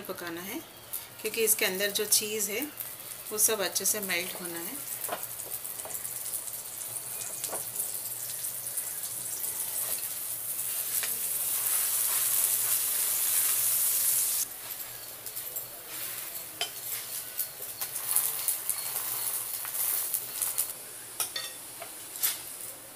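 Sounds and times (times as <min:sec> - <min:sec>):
butter sizzling on griddle: 0:00.9 - 0:22.9.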